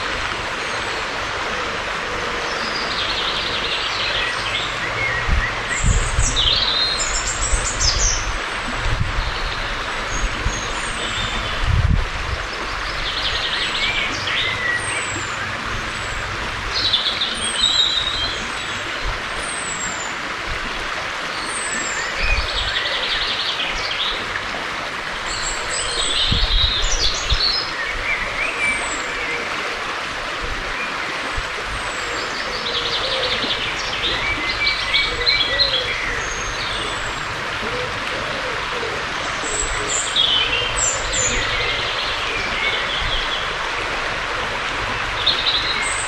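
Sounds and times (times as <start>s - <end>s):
songbirds singing with trills: 0.0s - 46.0s.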